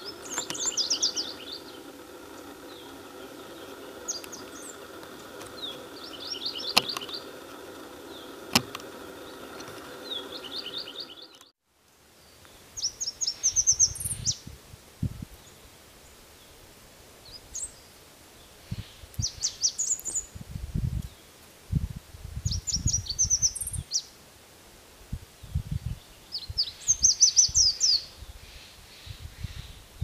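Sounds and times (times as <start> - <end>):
bird singing trilled phrases: 0.0 - 8.4, 9.1 - 11.4, 12.8 - 14.4, 22.5 - 24.1, 25.4 - 28.3
sharp clicks: 0.0 - 11.5.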